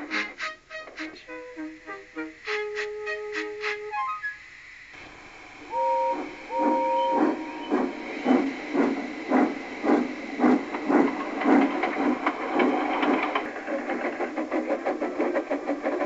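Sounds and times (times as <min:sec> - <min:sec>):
steam locomotive chuffing: 0:00.0 - 0:04.0, 0:04.8 - 0:16.0
steam whistle toots: 0:00.0 - 0:04.6, 0:05.3 - 0:08.1
steam hissing: 0:00.0 - 0:16.0.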